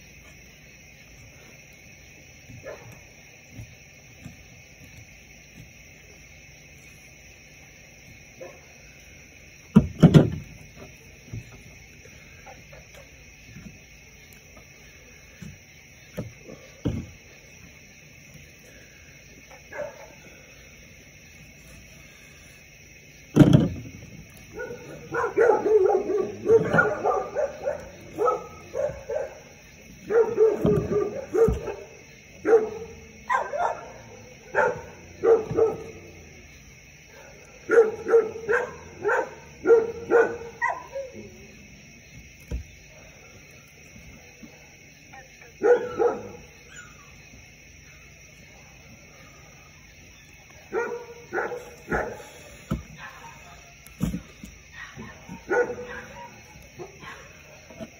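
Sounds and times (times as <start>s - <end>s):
dog barking and yipping: 8.4s - 8.7s, 19.7s - 20.2s, 24.5s - 36.1s, 37.2s - 41.2s, 45.6s - 47.1s, 50.7s - 52.3s, 53.0s - 53.7s, 54.6s - 57.8s.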